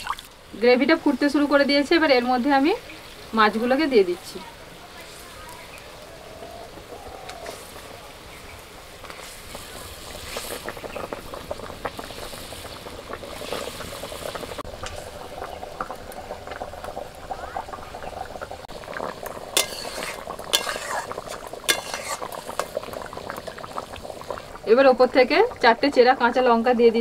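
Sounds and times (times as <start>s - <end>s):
gravy bubbling at a boil: 0.0s - 27.0s
metal spatula clicking on pan: 21.7s - 22.2s.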